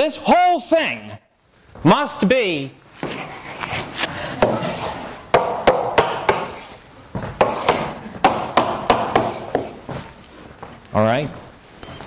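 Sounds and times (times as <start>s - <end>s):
chalk scraping: 3.0s - 9.9s
chalk tapping on blackboard: 4.4s - 6.8s, 7.4s - 10.0s.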